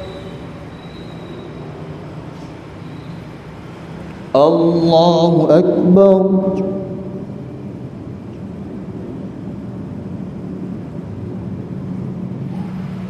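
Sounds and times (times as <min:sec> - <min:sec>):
low room hum: 0:04.1 - 0:12.5.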